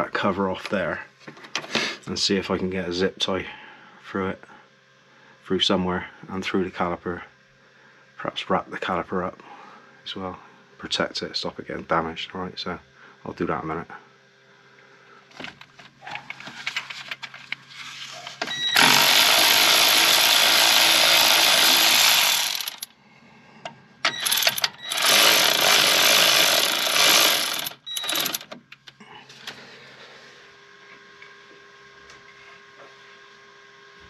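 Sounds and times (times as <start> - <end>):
impact wrench running: 18.5 - 22.9, 24.0 - 28.6.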